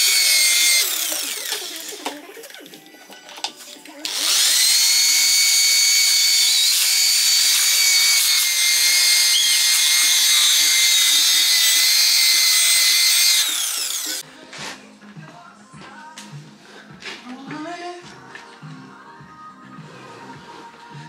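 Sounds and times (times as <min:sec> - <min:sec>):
electric polisher whining: 0:00.0 - 0:02.3, 0:04.1 - 0:14.2.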